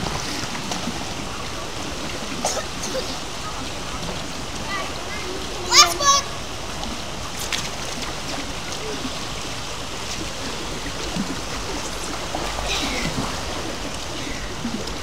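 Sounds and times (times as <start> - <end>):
light water splashes: 0.0 - 15.0
pool water lapping: 0.0 - 15.0.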